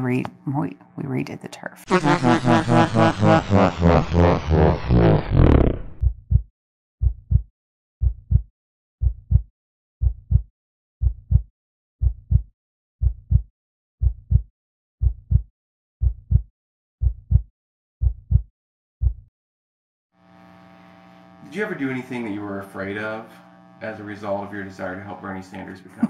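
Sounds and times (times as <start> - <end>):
paired low thumps beat: 2.4 - 19.3.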